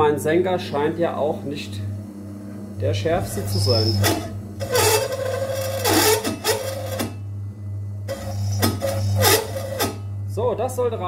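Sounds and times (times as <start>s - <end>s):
drill press motor humming: 0.5s - 11.0s
drill bit chattering and squealing: 3.1s - 7.0s, 8.1s - 9.9s.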